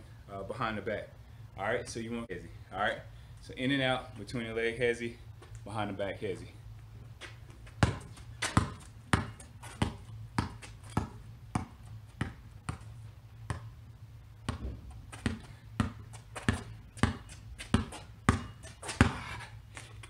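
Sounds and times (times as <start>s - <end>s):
basketball bouncing on concrete: 7.2s - 13.8s, 14.4s - 19.9s.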